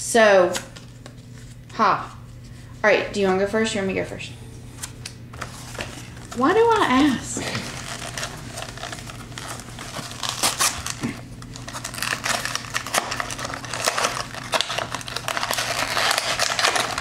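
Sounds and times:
cardboard and wrapping crinkling: 0:05.4 - 0:17.0.

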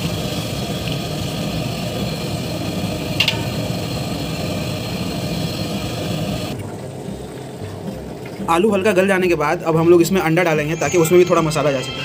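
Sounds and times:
metal utensil clinking on pot: 0:03.2 - 0:03.7.

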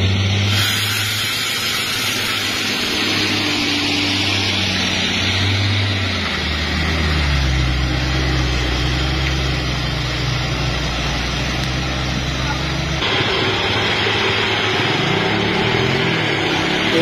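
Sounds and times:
tyre hiss on wet road: 0:00.4 - 0:05.6
bus diesel engine driving past: 0:01.6 - 0:17.0.

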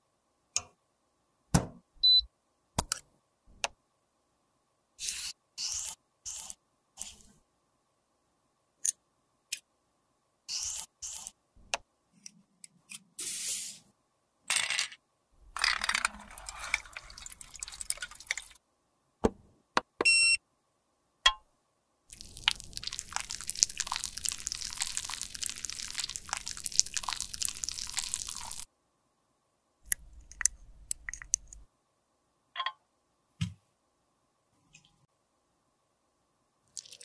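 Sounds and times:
dense steady crackling: 0:22.1 - 0:28.7.

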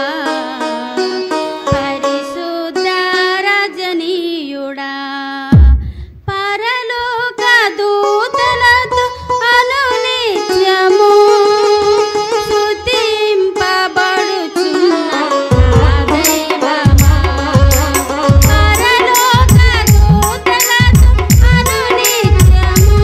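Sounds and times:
loud low thump: 0:05.5 - 0:06.3.

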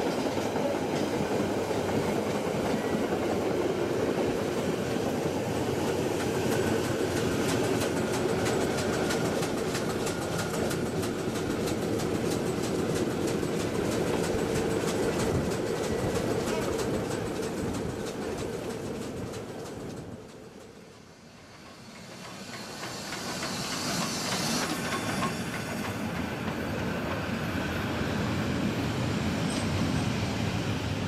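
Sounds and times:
rapid regular rail clicking: 0:00.0 - 0:28.0
train wheels rumbling on track: 0:00.0 - 0:31.0.

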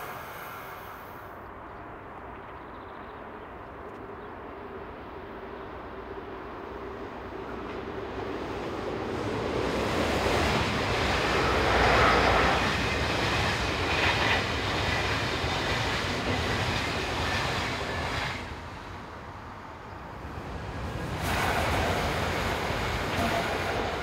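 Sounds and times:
train wheels on rail: 0:00.0 - 0:01.4, 0:06.3 - 0:19.4, 0:20.0 - 0:24.0.

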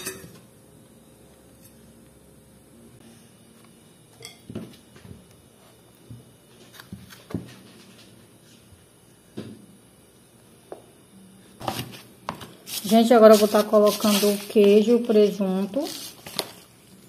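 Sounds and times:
utensils clinking on baking tray: 0:00.0 - 0:00.4.

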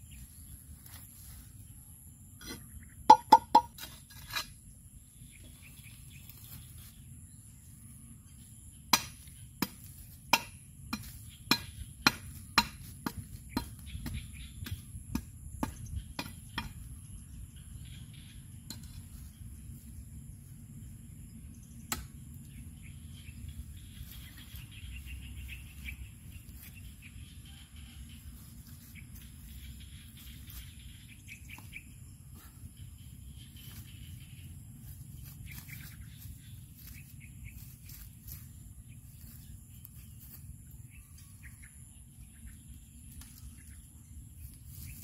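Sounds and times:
high insect hum: 0:00.0 - 0:45.0
machete chopping wooden log: 0:08.9 - 0:16.8, 0:21.9 - 0:22.2.

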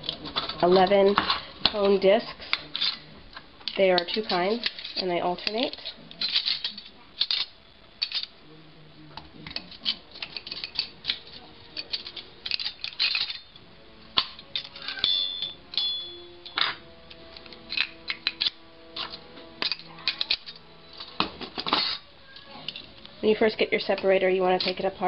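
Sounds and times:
metal discs clinking: 0:00.0 - 0:08.4, 0:09.4 - 0:13.6, 0:14.2 - 0:16.8, 0:17.4 - 0:22.0
metallic ring: 0:14.8 - 0:16.7.

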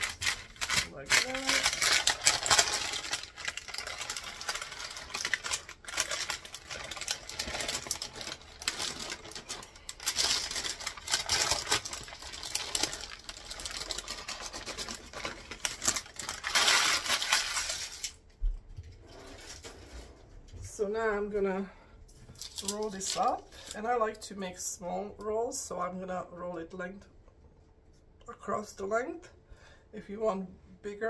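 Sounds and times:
parchment paper crinkling: 0:00.0 - 0:18.2, 0:22.3 - 0:23.8.

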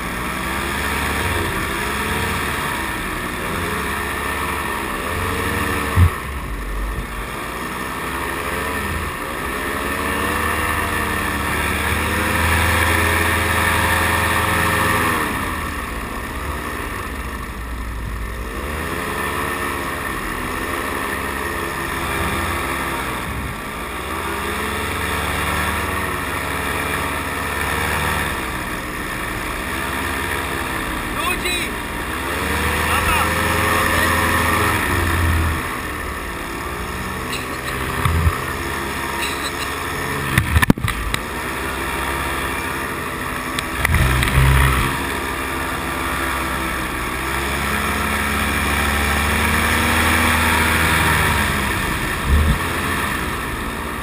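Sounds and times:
paramotor engine and propeller: 0:00.0 - 0:54.0
sharp thump: 0:05.9 - 0:06.4.

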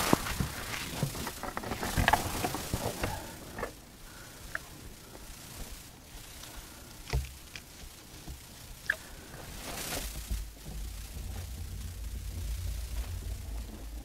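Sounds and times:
low rumble: 0:08.7 - 0:14.0.

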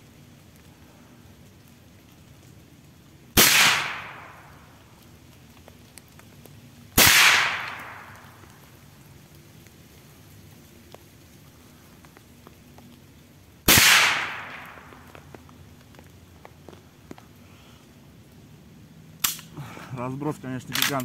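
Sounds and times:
shotgun shots with echo: 0:03.4 - 0:04.4, 0:07.0 - 0:08.2, 0:13.7 - 0:14.8.

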